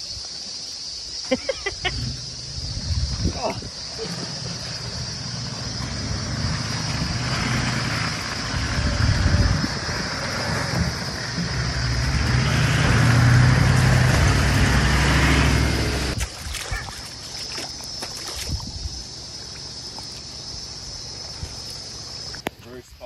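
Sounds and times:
tyres sloshing through mud: 0:01.4 - 0:22.6
vehicle engine running: 0:04.0 - 0:16.2.

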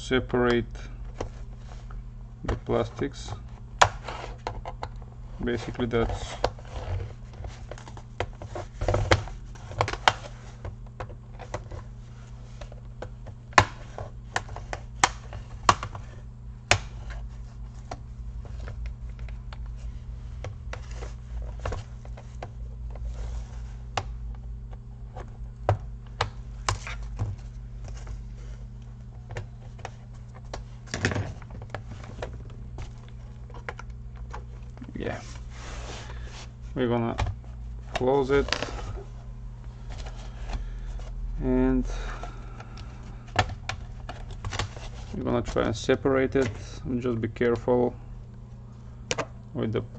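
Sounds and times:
steady low hum: 0:00.0 - 0:49.9.

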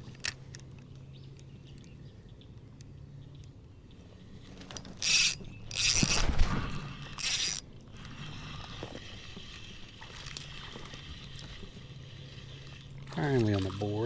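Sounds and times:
fishing reel drag buzzing: 0:04.8 - 0:13.0.

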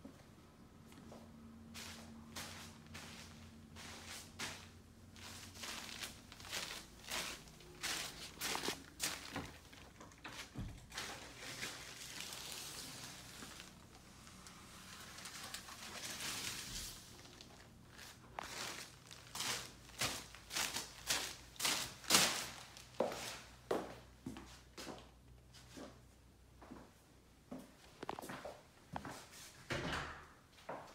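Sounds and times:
footsteps on plastic sheeting: 0:01.8 - 0:13.8, 0:16.0 - 0:23.5
plastic rustling and crinkling: 0:01.8 - 0:23.4.

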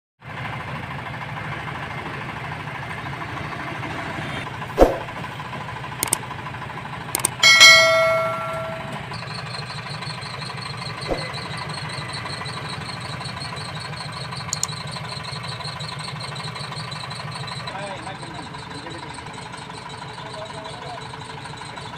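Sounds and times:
tractor diesel engine running: 0:00.2 - 0:21.9
thump: 0:04.8 - 0:05.0
clicks: 0:07.2 - 0:09.0
ringing bell chime: 0:07.4 - 0:09.2.

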